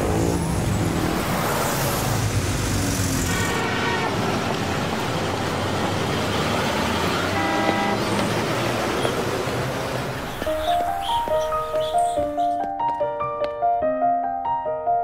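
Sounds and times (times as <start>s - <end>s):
passing cars: 0.0s - 12.5s
car horns honking: 3.3s - 4.6s, 6.9s - 8.2s.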